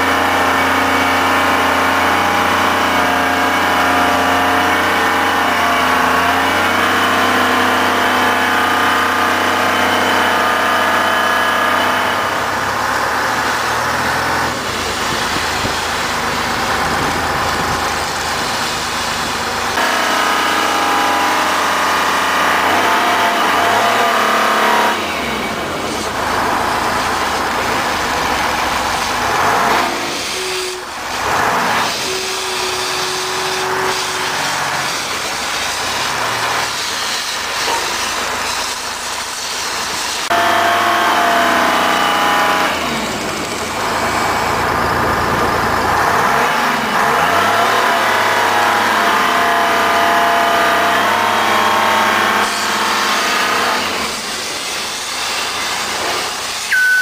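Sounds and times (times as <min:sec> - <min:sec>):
diesel engine idling: 0:09.3 - 0:40.2, 0:42.6 - 0:47.6.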